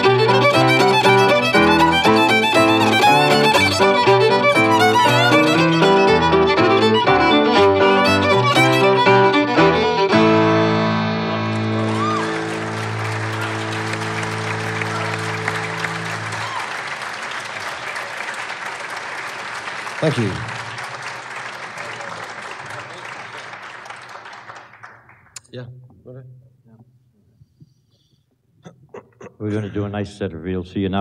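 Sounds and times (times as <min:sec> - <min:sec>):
audience applause: 0:00.0 - 0:09.0, 0:11.2 - 0:25.4
button accordion: 0:00.0 - 0:11.7
fiddle: 0:00.0 - 0:16.5
piano: 0:00.0 - 0:17.6.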